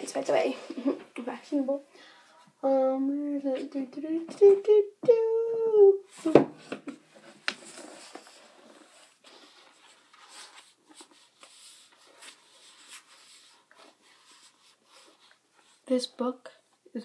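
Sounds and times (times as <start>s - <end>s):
book rustling and tapping: 6.2s - 15.4s.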